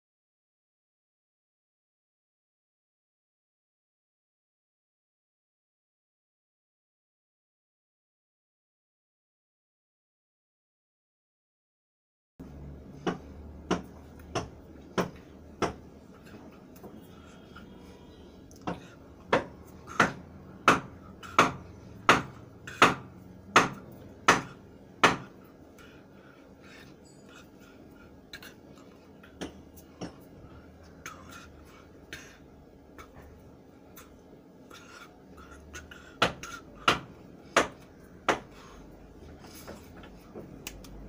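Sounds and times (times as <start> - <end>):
sharp knocks: 18.7 - 25.3.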